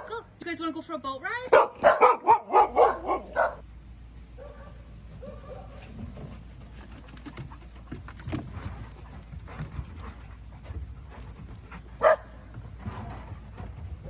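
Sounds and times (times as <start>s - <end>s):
dogs barking excitedly: 0.0s - 0.3s, 1.4s - 6.1s, 8.9s - 12.8s
loud dog bark: 1.5s - 3.7s, 12.0s - 12.3s.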